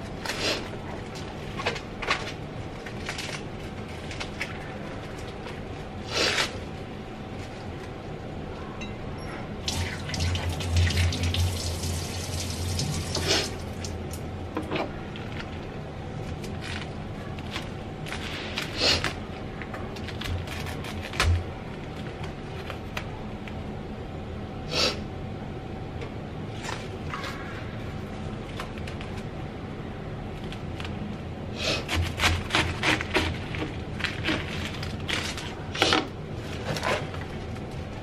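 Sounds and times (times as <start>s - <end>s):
plastic bag crinkling: 1.0s - 7.9s, 32.5s - 38.0s
knife cutting lettuce: 31.6s - 37.4s.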